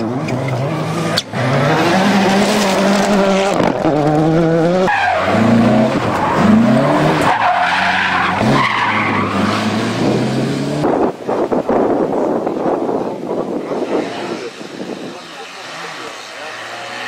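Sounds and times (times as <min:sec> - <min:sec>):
rally car engines revving: 0:00.0 - 0:17.0.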